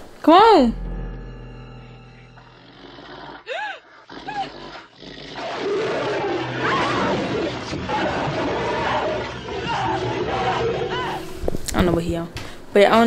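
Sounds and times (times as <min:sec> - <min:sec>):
dog snarling and struggle: 0:03.9 - 0:08.5.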